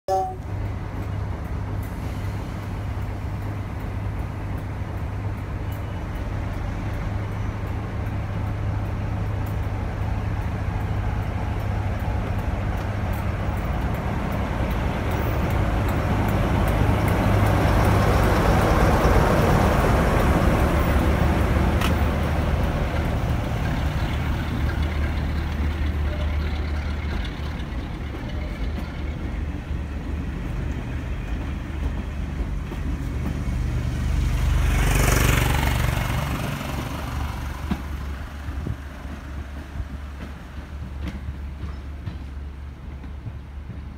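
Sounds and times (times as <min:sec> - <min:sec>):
locomotive engine drone: 0:00.1 - 0:43.9
coaches rolling past: 0:00.6 - 0:34.0.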